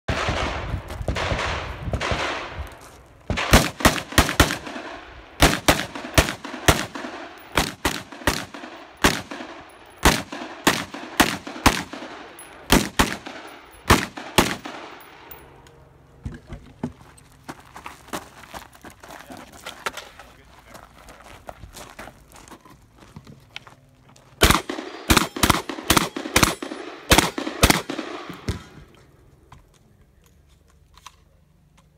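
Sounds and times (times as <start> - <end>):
pistol shots: 3.3 - 15.4, 24.4 - 28.8.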